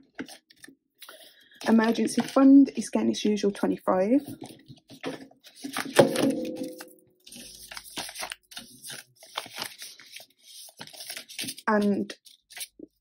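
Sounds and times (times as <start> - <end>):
plastic crinkling and rustling: 4.2 - 6.7.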